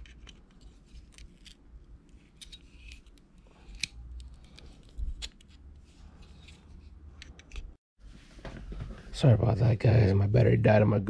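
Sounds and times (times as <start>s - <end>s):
small metallic clicks and scrapes: 0.0s - 7.8s.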